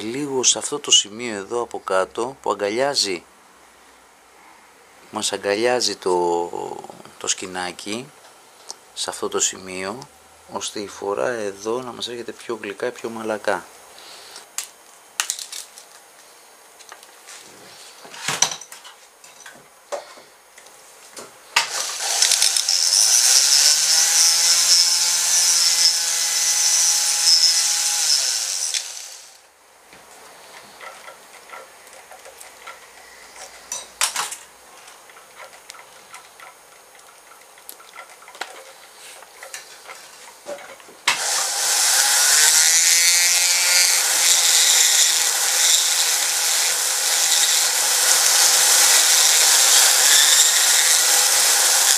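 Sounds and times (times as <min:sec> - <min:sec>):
rotary tool grinding: 0:21.7 - 0:29.4, 0:41.2 - 0:51.9.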